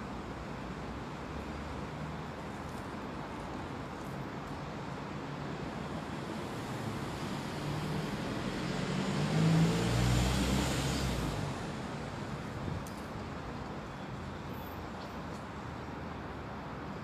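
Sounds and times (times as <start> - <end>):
outdoor background hiss: 0.0 - 17.0
vehicle passing by: 7.5 - 11.8.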